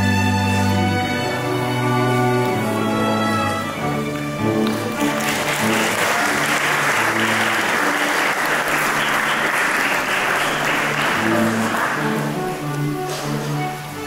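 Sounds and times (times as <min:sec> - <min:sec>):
instrumental music: 0:00.0 - 0:14.0
crowd applauding: 0:04.6 - 0:12.7.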